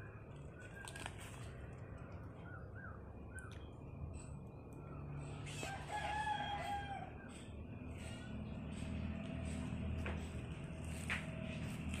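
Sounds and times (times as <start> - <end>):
bird chirps: 0.0 - 5.8
rooster crowing: 5.4 - 7.4.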